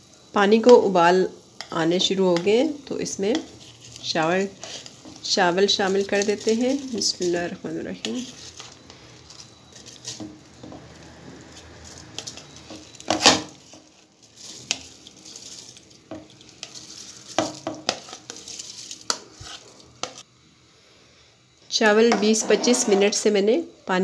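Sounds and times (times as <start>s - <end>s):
rice scraped from bowl: 22.2s - 23.2s.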